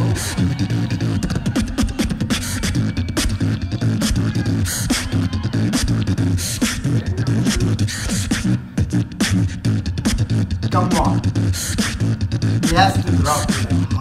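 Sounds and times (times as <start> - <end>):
beatboxing into a microphone: 0.0 - 14.0.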